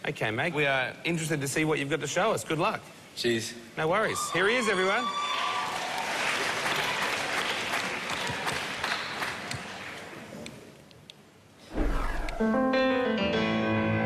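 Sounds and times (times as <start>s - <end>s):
audience applauding: 5.2s - 10.3s.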